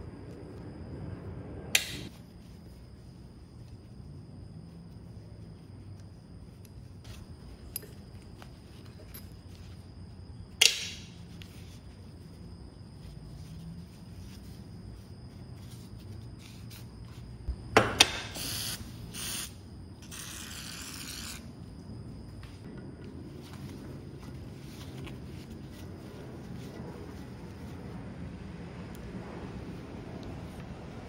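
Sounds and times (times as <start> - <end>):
aerosol can hissing: 18.2 - 21.4.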